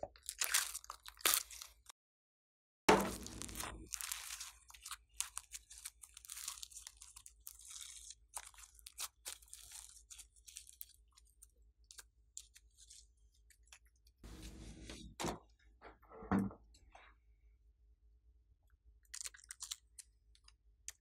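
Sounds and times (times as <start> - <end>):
slime crackling and popping: 2.9 - 13.8, 19.0 - 21.0.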